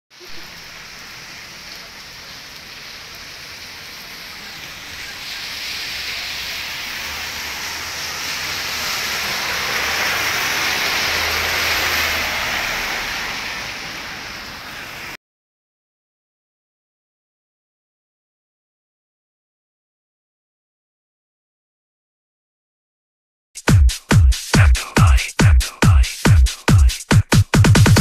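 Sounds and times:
rain falling: 0.1 - 15.2, 23.7 - 28.0.

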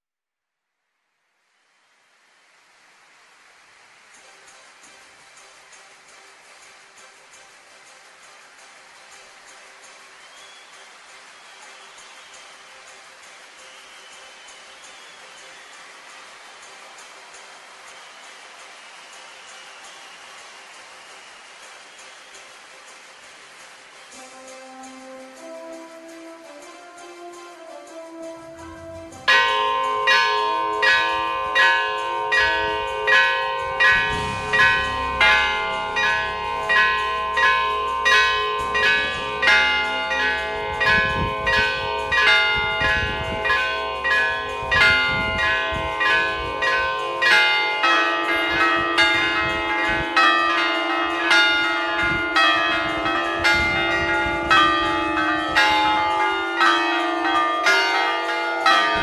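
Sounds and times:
church bells pealing: 28.3 - 59.0
deeper bell: 28.4 - 59.0.

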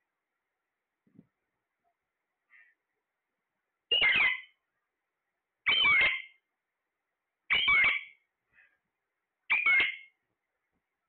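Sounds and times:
parakeet calling: 3.9 - 4.6, 5.6 - 6.5, 7.5 - 8.3, 9.5 - 10.2.

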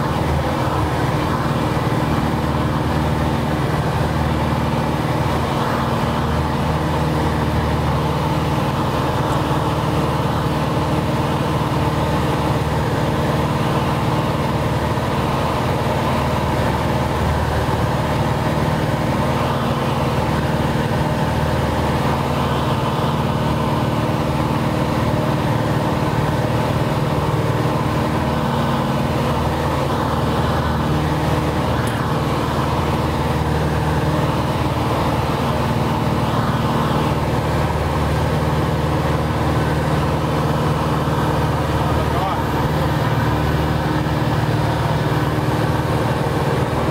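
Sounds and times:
airplane engine and propeller: 0.0 - 46.9.

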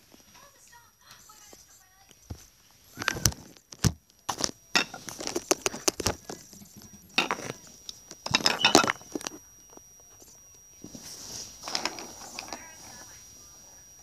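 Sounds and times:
paper rustling: 2.3 - 6.4.

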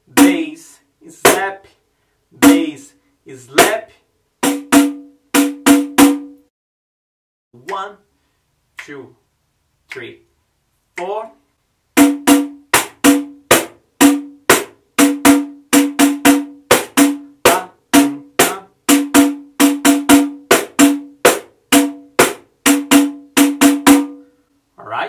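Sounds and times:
pandeiro samba rhythm: 4.4 - 6.4, 12.0 - 24.3.

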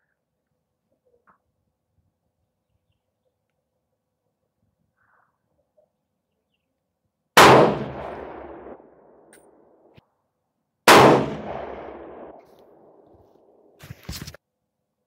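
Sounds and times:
rifle shots: 7.4 - 8.9, 10.9 - 13.0.

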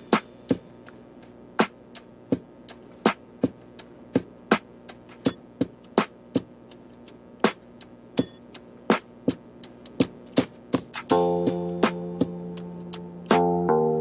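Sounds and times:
sparse percussive beat: 7.4 - 13.6.

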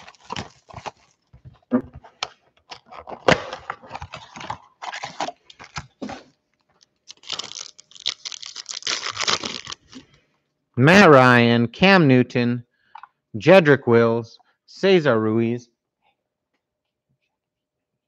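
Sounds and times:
cardboard box tearing: 0.0 - 1.2
foil packs crinkling: 0.0 - 10.2.

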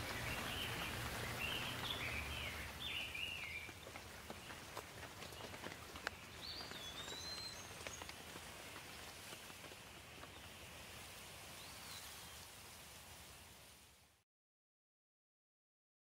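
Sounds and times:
bird calling: 0.0 - 9.0
sharp water drips: 0.0 - 13.9
light rain hiss: 0.0 - 14.2.

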